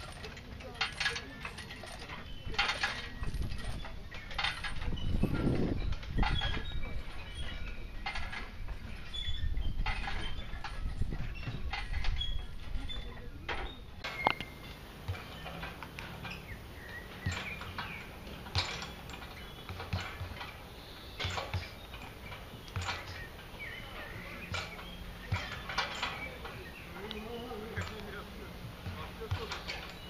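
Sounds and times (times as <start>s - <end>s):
knocks and clanks of gym equipment: 13.5s - 30.0s.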